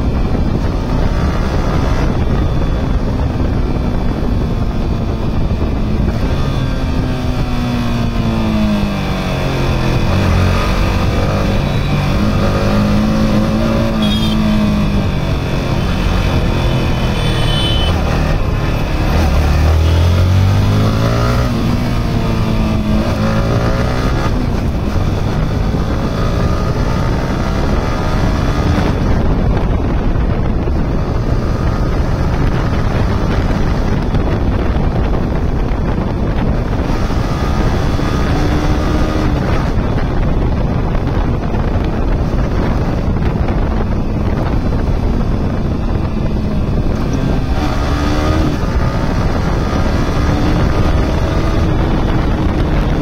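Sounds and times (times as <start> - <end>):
motorcycle engine revving: 0.0 - 53.0
wind and road noise: 0.0 - 53.0.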